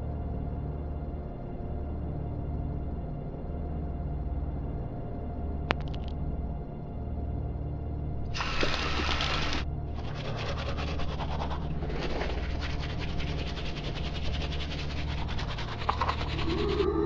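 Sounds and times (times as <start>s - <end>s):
tap water running: 8.4s - 9.6s
toothbrush scrubbing teeth: 8.4s - 17.0s.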